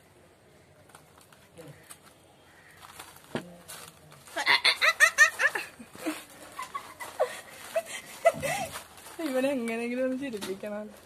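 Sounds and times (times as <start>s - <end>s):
high-pitched laughter: 4.4s - 8.7s.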